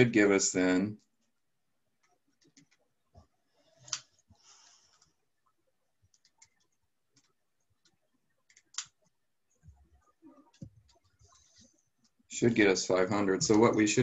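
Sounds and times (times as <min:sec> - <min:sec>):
faint clicks and light taps: 0:00.9 - 0:05.2, 0:06.0 - 0:12.2.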